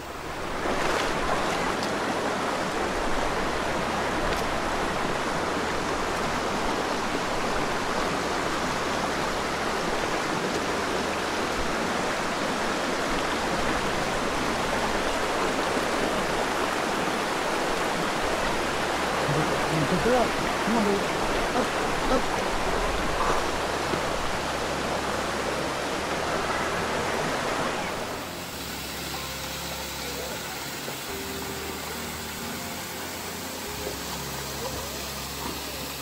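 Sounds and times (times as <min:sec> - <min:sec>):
waterfall rushing: 0:00.0 - 0:36.0.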